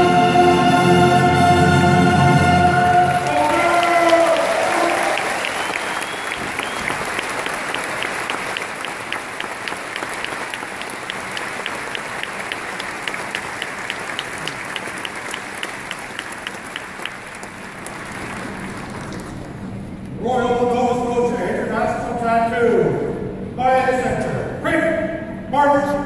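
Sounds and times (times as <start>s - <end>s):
audience applauding: 2.3s - 19.8s.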